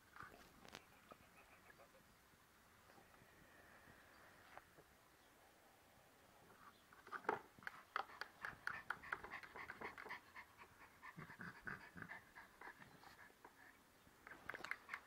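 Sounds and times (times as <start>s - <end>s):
dog panting: 7.6s - 13.8s.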